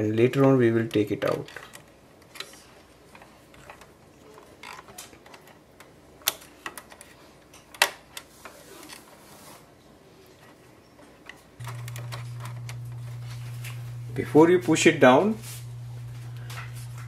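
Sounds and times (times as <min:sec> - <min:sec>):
clicks and taps of plastic parts: 0:00.4 - 0:08.3.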